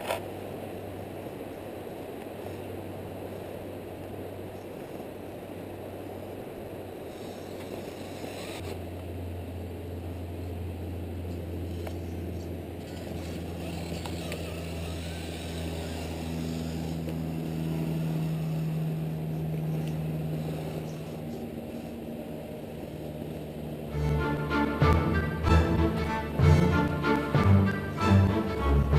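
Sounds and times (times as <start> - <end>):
toy car motor whirring: 7.1 - 8.8, 12.8 - 19.0.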